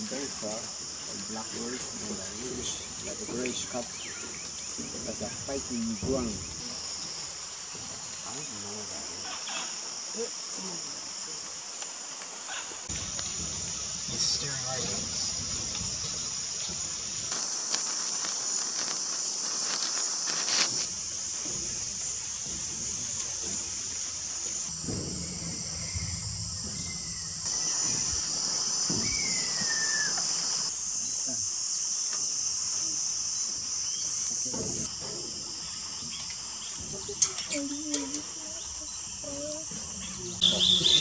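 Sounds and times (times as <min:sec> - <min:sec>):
insect chorus: 0:00.0 - 0:41.0
faint whistled note sliding down: 0:29.0 - 0:30.3.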